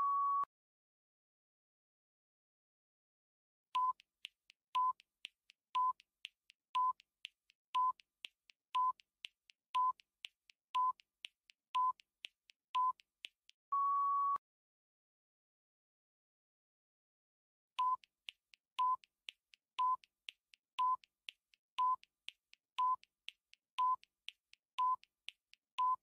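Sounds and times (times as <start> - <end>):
faint ticks: 3.8 - 13.6, 17.8 - 26.0.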